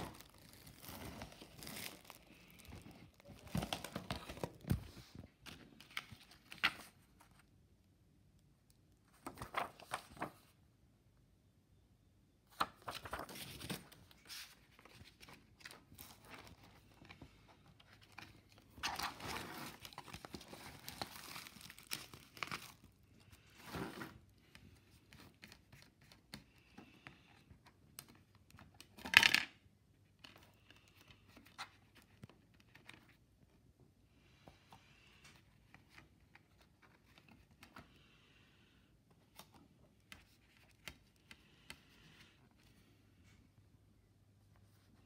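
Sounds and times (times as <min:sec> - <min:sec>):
paper and plastic cases rustling: 0:00.0 - 0:07.2.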